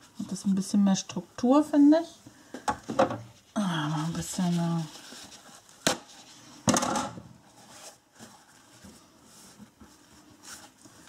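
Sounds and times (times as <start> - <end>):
faint paper rustling: 3.3 - 6.7, 7.4 - 11.0.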